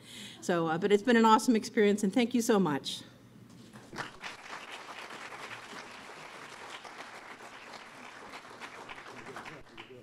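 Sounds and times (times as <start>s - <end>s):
audience applauding: 3.9s - 10.0s.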